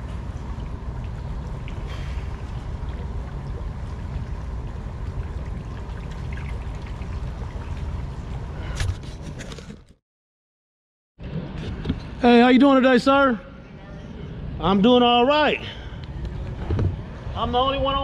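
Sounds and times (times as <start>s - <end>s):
water lapping against boat hull: 0.0s - 9.3s.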